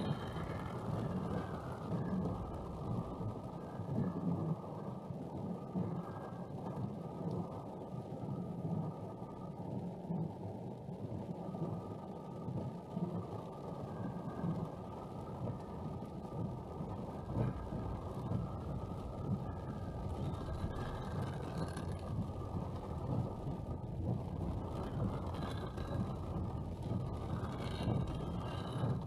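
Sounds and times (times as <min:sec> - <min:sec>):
car engine and tyre noise: 0:13.4 - 0:29.0.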